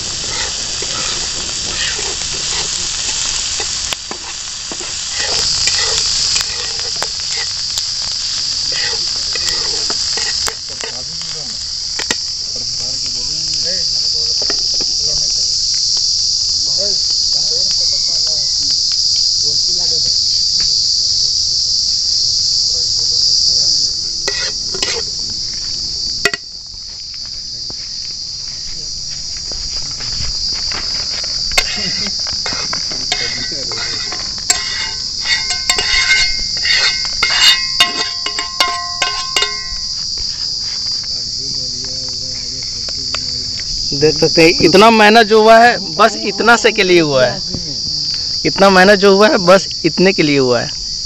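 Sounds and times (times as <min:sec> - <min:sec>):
high-pitched insect chorus: 0:00.0 - 0:51.0
metal spatula scraping frying pan: 0:00.2 - 0:02.8, 0:03.5 - 0:07.6, 0:08.7 - 0:11.0, 0:24.2 - 0:25.1, 0:31.5 - 0:39.9.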